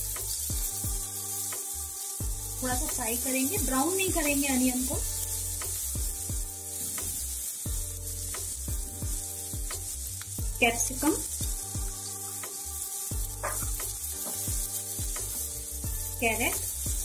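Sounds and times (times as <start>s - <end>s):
vegetables sizzling in hot oil: 0.0s - 17.0s.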